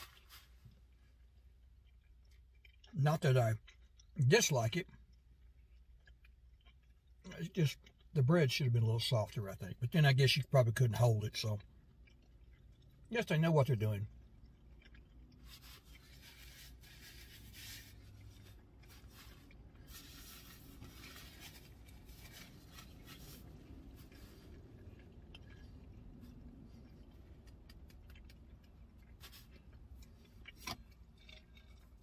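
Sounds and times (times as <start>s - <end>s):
food handling: 0.0s - 1.0s, 14.7s - 32.0s
low steady rumble: 0.0s - 32.0s
soft chewing: 0.0s - 32.0s
paper napkin rustling: 15.5s - 24.4s.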